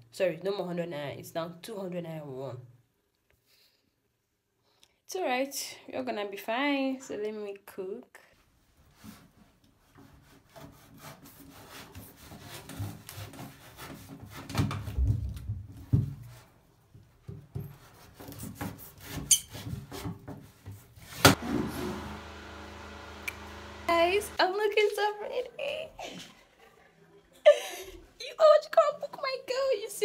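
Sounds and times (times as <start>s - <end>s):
knife sawing through yam: 10.2s - 14.2s.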